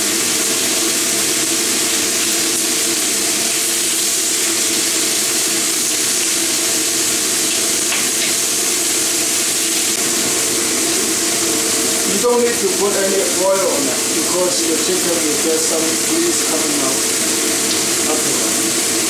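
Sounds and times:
chicken sizzling in a frying pan: 0.0s - 19.0s.

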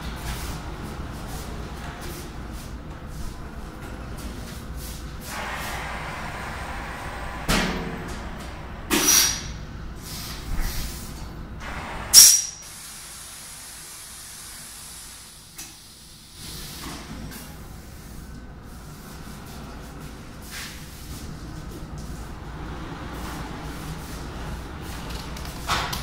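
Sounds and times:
steady air hiss: 4.8s - 16.9s
short sharp air hisses: 8.9s - 11.1s, 11.8s - 16.9s.

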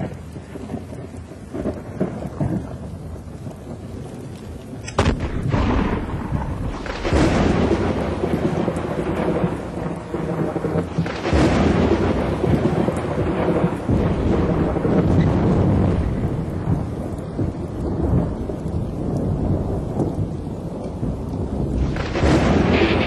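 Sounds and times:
heavy rain hissing: 0.0s - 23.0s
rumbles of thunder: 0.0s - 23.0s
sharp thunderclap: 4.8s - 23.0s.

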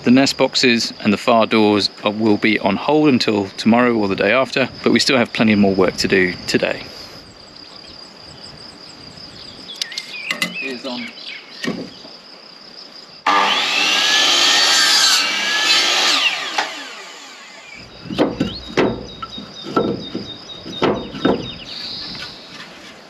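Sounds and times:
wooden knocks and clatters: 11.6s - 12.2s, 17.8s - 23.0s
power tool cutting wood: 13.3s - 18.6s.

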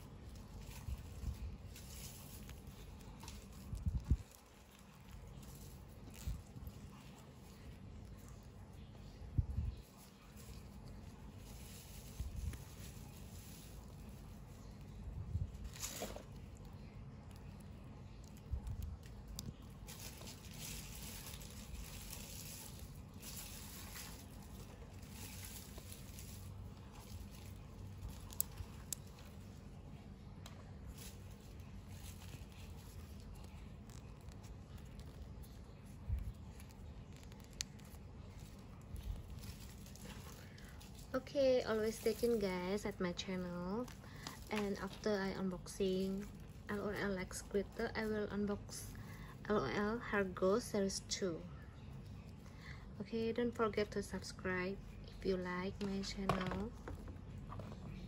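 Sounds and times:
plastic packaging rustling: 0.0s - 50.0s, 54.0s - 58.0s
packaging rustling: 19.0s - 29.7s, 30.5s - 46.7s.

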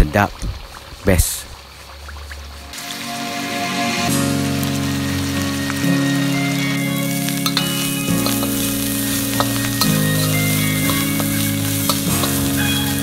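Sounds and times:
food sizzling in oil: 1.6s - 13.0s
soft background music: 2.7s - 13.0s
metal spatula scraping wok: 7.2s - 13.0s.

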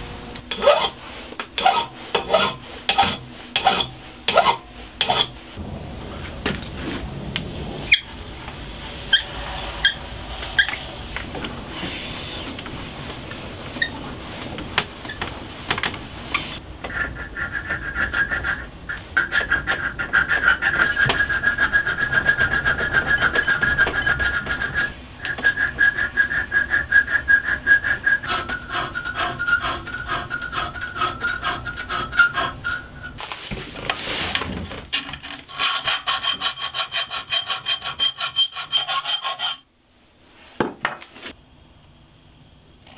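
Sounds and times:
metal file filing copper: 0.5s - 1.0s, 1.6s - 5.4s, 16.3s - 33.2s, 35.5s - 39.7s.

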